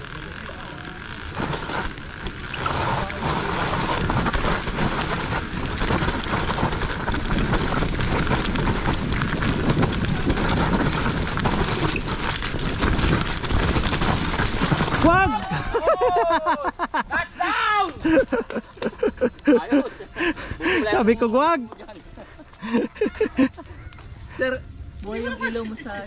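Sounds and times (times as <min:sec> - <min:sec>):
bike tyres rumbling and rattling: 0:00.0 - 0:26.0
wind rushing over microphone: 0:01.3 - 0:15.8.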